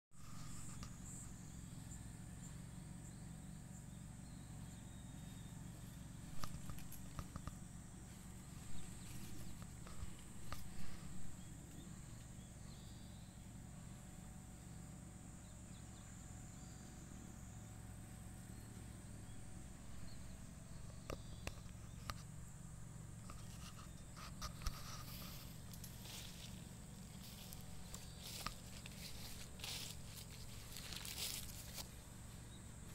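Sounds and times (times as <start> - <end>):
low hum: 0.2 - 32.9
animal scratching in grass: 6.3 - 11.4, 23.2 - 32.0.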